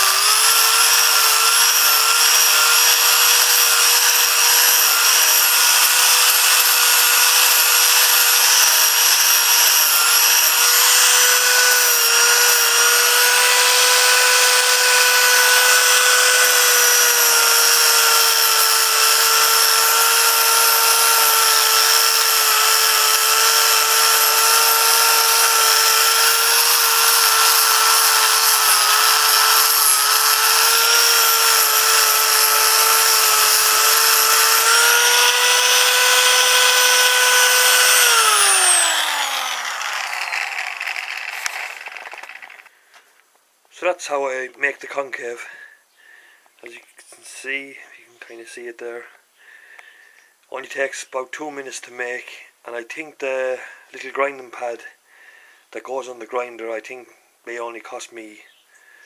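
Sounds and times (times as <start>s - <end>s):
angle grinder grinding wood: 0.0s - 43.0s.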